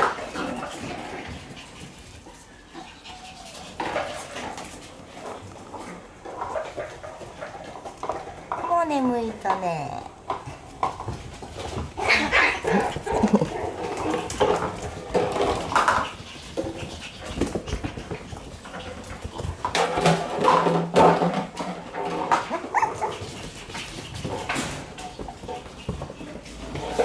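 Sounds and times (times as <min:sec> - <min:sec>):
puppies making high-pitched calls: 0:02.4 - 0:03.8, 0:22.5 - 0:23.2.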